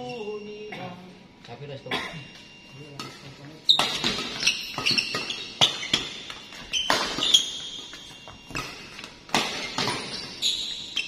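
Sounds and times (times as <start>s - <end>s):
shoes squeaking on court: 2.3s - 11.0s
racket striking shuttlecock: 3.8s - 10.4s.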